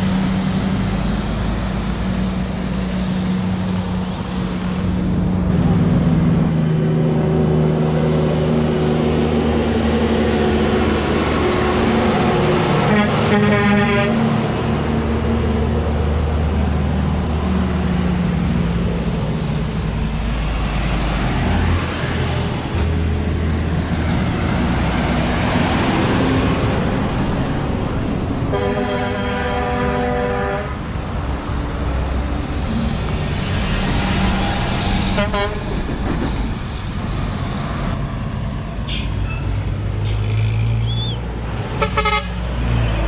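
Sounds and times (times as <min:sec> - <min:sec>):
trucks passing: 0:00.0 - 0:43.0
truck horn: 0:12.8 - 0:14.4, 0:28.5 - 0:30.9, 0:35.2 - 0:35.7, 0:40.9 - 0:42.5.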